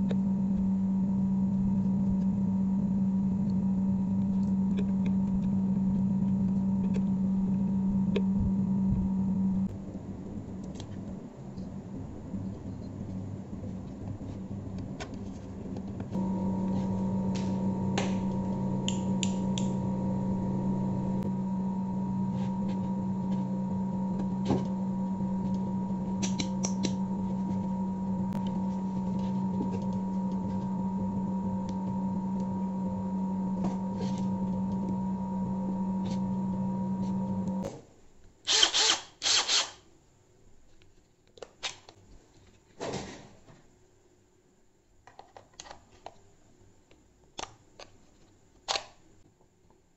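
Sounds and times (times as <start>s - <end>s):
electrical hum: 0.0s - 37.7s.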